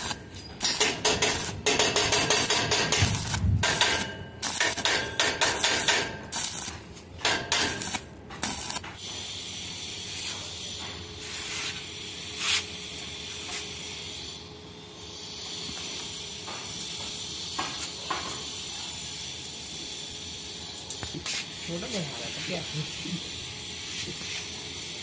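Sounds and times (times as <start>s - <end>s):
welding arc crackling: 0.0s - 14.4s.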